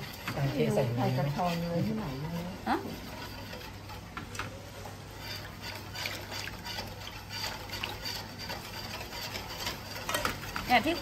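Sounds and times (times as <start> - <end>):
whisk clicking against bowl: 5.2 - 11.0.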